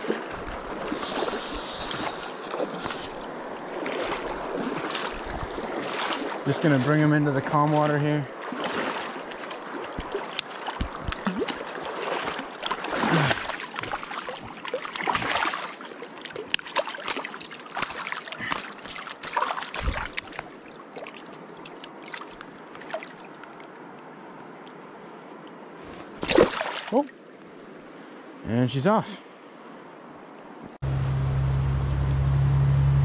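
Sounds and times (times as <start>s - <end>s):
fish splashing and thrashing: 0.0s - 6.6s, 8.4s - 23.7s, 26.1s - 27.0s
river rushing: 0.0s - 24.3s, 25.8s - 28.5s.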